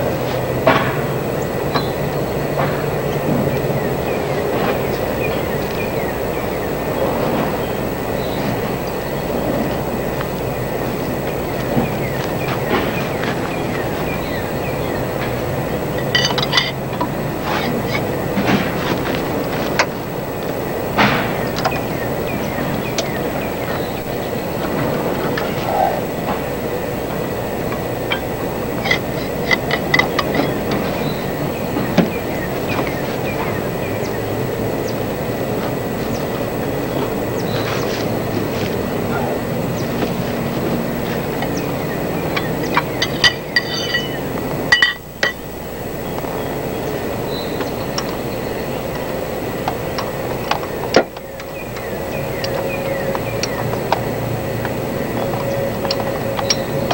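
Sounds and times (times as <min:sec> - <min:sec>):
steady background noise: 0:00.0 - 0:56.9
steady rushing background noise: 0:00.0 - 0:56.9
metal tools clinking on engine: 0:01.7 - 0:46.3, 0:48.9 - 0:56.9
wrench clinking on metal: 0:15.9 - 0:18.1, 0:28.1 - 0:31.0, 0:42.3 - 0:45.4.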